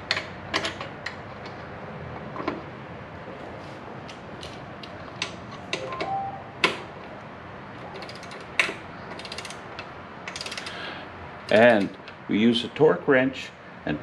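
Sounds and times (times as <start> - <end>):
torque wrench clicks: 8.0 - 10.8
ratchet pawl clicking: 10.3 - 10.8.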